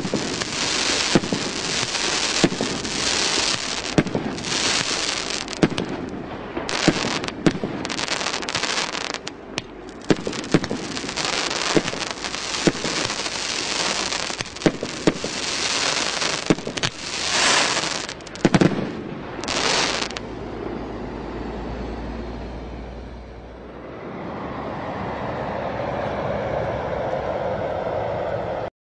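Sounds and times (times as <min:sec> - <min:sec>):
firework bangs: 0:00.0 - 0:20.2
crackling hiss: 0:00.0 - 0:20.4.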